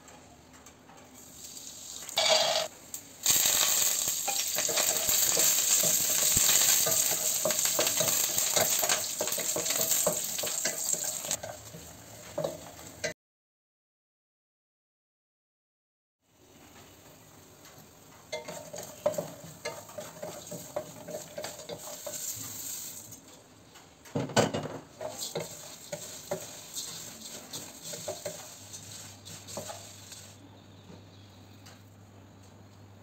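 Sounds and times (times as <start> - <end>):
oil sizzling in a pan: 1.2 - 13.1, 16.4 - 23.4, 24.8 - 30.5
wooden spatula scraping a pan: 3.3 - 12.9, 18.3 - 23.2, 24.9 - 30.4.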